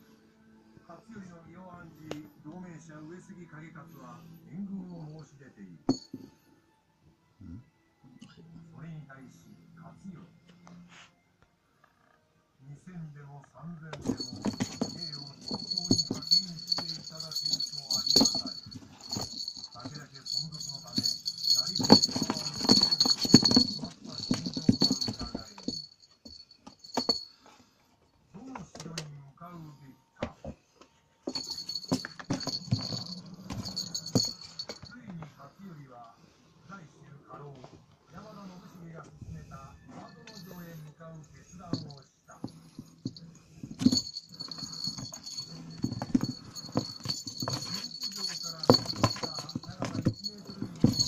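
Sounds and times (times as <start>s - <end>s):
jingle bell jingling: 5.9s - 6.3s, 13.9s - 27.5s, 31.3s - 35.1s, 40.0s - 40.8s, 41.5s - 51.0s.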